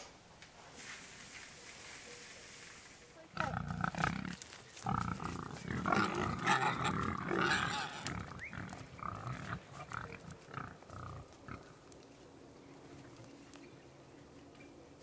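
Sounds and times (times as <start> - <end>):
pigs grunting and squealing: 3.3 - 11.9.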